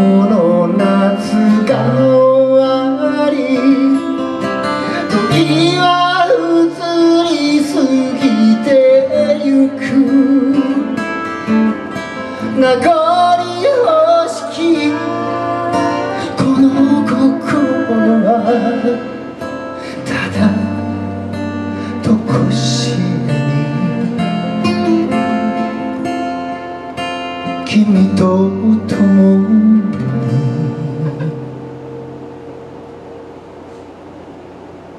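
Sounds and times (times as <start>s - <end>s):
person singing: 0.0s - 26.7s, 27.4s - 31.6s
acoustic guitars strummed and picked: 0.0s - 34.0s.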